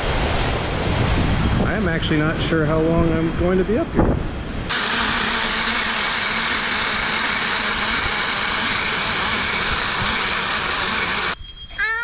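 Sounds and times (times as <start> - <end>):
rushing air: 4.0 - 11.4
zipline pulleys whirring on cable: 4.7 - 11.4.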